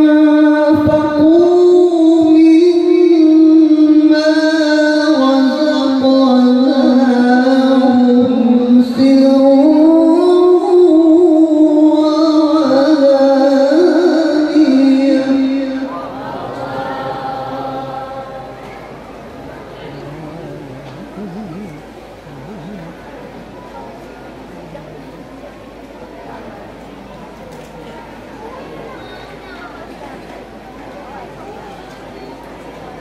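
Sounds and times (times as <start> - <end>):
man reciting through pa system: 19.9 - 23.1.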